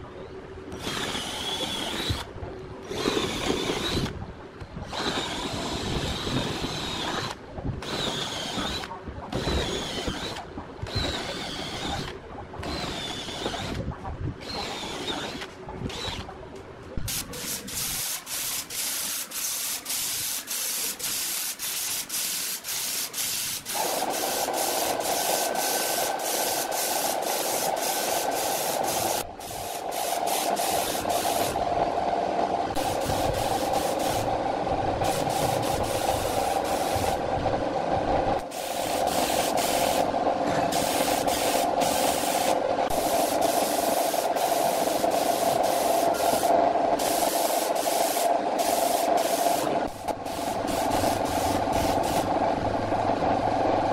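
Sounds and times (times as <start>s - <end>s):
spray gun hissing: 17.1s - 31.6s, 32.8s - 34.3s, 35.0s - 37.2s, 38.5s - 40.1s, 40.7s - 52.3s.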